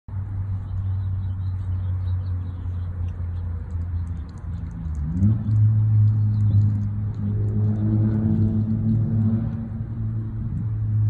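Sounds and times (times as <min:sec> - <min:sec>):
dog chewing clicks: 0:02.8 - 0:09.6.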